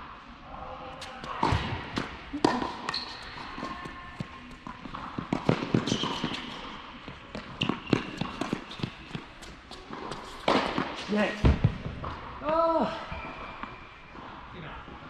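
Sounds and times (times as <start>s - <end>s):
racket hitting tennis ball: 1.2s - 11.8s
shoe squeaks: 2.8s - 4.2s, 5.8s - 6.7s, 7.5s - 9.1s, 13.1s - 14.2s
ball bounces: 7.3s - 9.3s.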